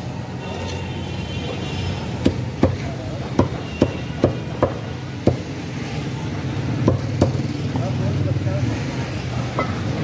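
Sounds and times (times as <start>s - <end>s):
cleaver chopping on wooden block: 2.2s - 5.5s.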